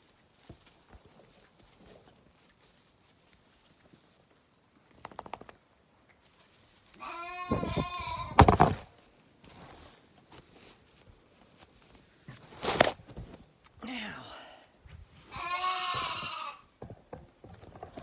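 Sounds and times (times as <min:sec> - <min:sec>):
patter of clicks: 0:04.9 - 0:05.8
lamb bleating: 0:07.0 - 0:08.4, 0:15.3 - 0:16.6.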